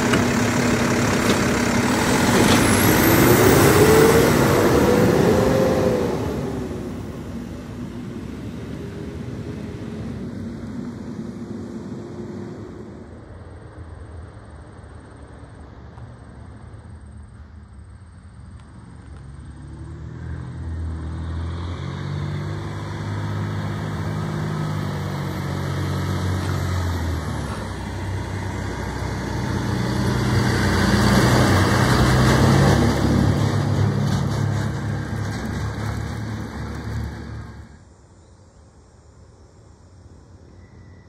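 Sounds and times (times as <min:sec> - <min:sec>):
garbage truck engine running: 0:00.0 - 0:05.3.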